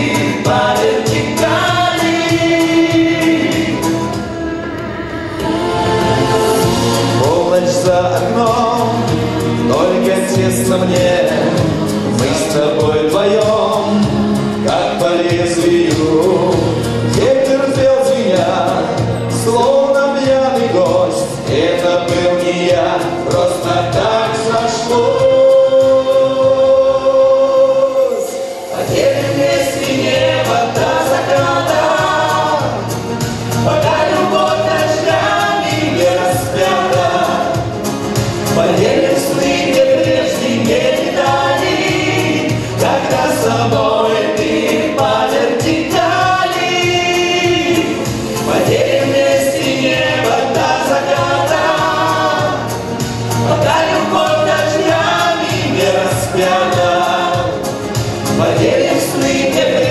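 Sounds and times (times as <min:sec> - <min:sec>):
man singing: 0:00.0 - 0:04.3, 0:05.4 - 0:59.9
woman singing harmony: 0:00.0 - 0:07.6
recorded backing music: 0:00.0 - 0:59.9.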